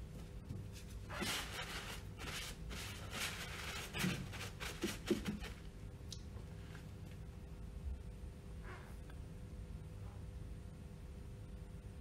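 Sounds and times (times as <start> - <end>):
cloth swishing over metal cover: 0.7 - 5.6.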